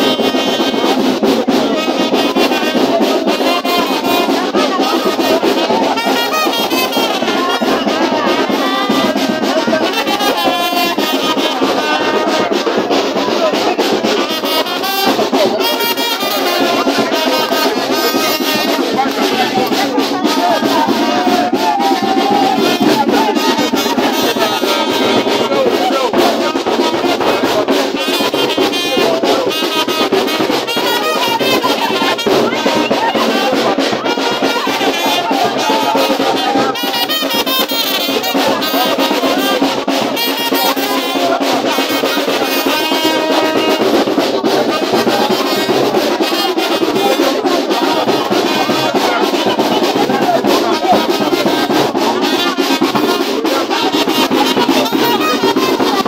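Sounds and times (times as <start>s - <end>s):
brass band playing dance music: 0.0s - 56.0s
crowd voices: 0.0s - 56.0s.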